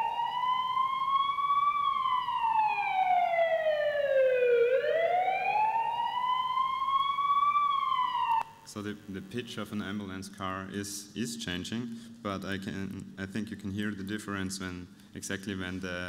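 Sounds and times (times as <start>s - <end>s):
ambulance siren wailing: 0.0s - 8.6s.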